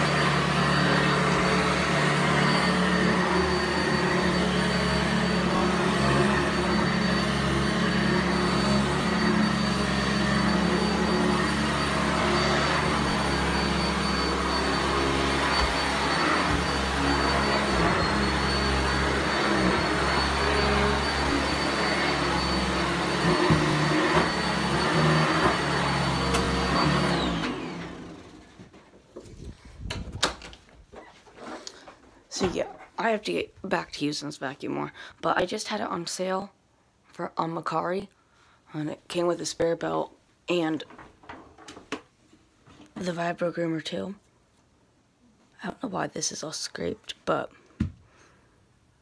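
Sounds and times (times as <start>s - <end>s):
upright vacuum running on carpet: 0.0s - 28.4s
vacuum motor winding down: 0.0s - 28.5s.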